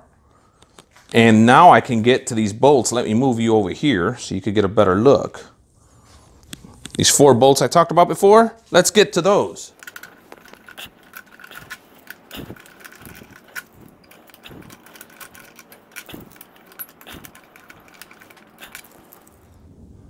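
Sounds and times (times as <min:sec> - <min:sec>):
hex key clicking and scraping: 0:09.7 - 0:19.4.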